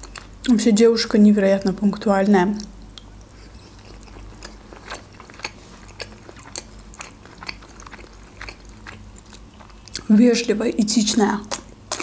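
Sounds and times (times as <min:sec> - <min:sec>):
person chewing with mouth smacks: 0:00.0 - 0:00.5, 0:02.6 - 0:10.1, 0:11.5 - 0:12.0.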